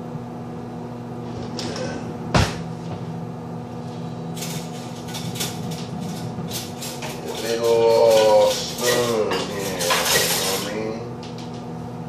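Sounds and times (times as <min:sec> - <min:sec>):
appliance hum: 0:00.0 - 0:12.0
dishes and cutlery clinking: 0:04.4 - 0:10.8.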